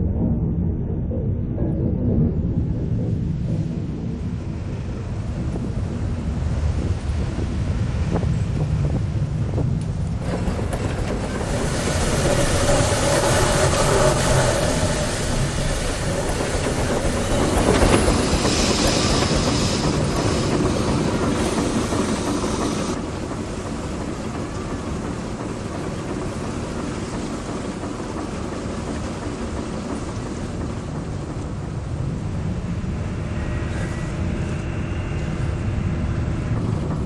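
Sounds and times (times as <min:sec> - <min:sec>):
boat engine rumbling: 0:00.0 - 0:37.0
water hiss: 0:10.2 - 0:24.7.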